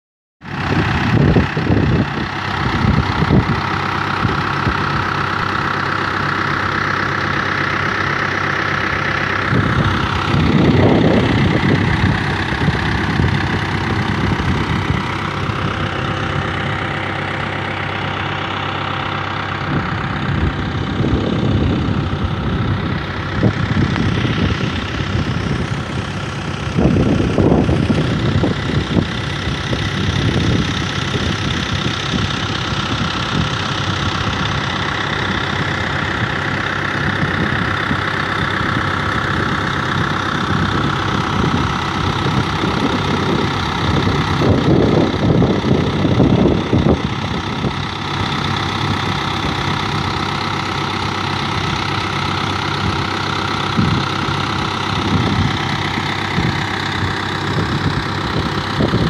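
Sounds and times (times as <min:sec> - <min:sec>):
tractor diesel engine running: 0:00.4 - 0:59.0.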